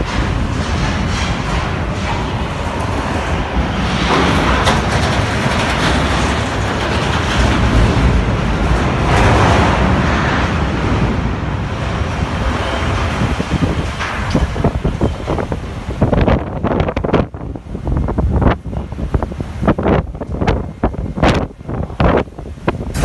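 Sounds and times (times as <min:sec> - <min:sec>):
wind blowing across microphone: 0:00.0 - 0:23.0.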